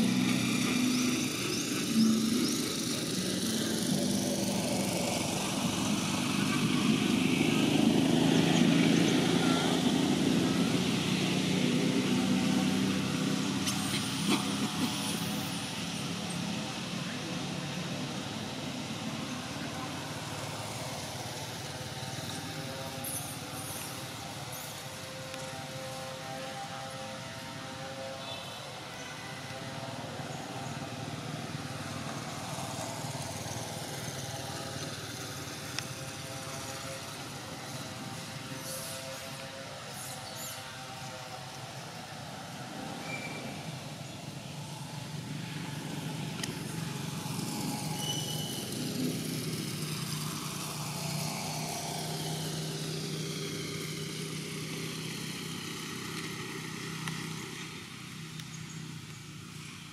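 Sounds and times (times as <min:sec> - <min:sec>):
motor engine running: 0:00.0 - 0:40.0.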